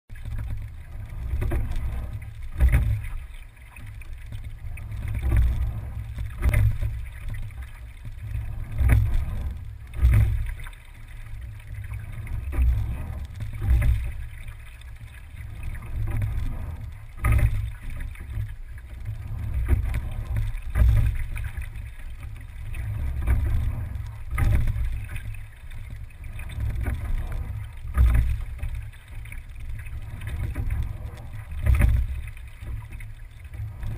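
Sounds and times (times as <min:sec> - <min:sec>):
steady low rumble: 0:00.1 - 0:33.9.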